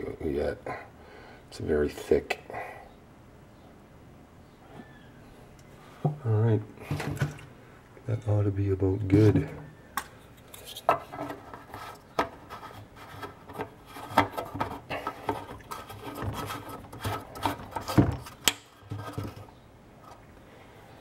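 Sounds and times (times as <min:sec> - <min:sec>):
objects handled at workbench: 0:10.3 - 0:20.2.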